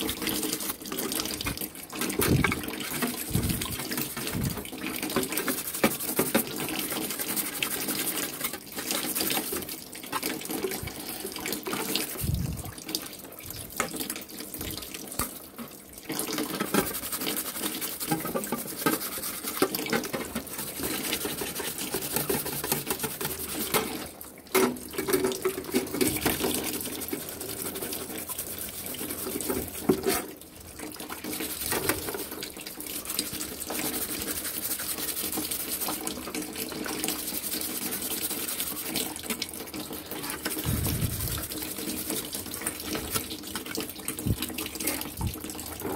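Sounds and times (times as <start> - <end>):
water splashing and dripping: 0.0 - 45.9
brush scrubbing metal blades: 2.0 - 12.6, 16.4 - 24.1, 25.2 - 30.4, 31.2 - 39.3, 39.9 - 43.4.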